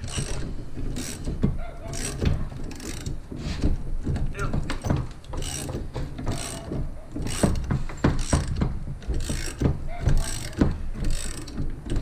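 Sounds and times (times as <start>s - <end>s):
ratchet wrench clicking: 9.2s - 9.6s, 10.2s - 12.0s.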